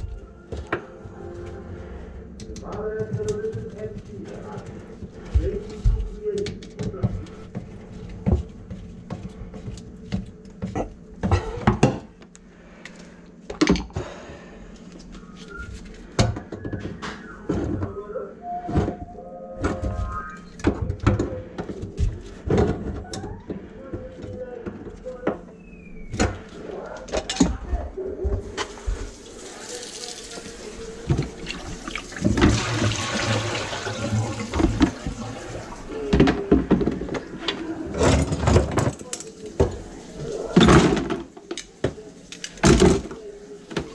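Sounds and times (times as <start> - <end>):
water pouring into a steel sink: 29.0 - 36.0
knocks and clatters of tools: 40.6 - 43.9.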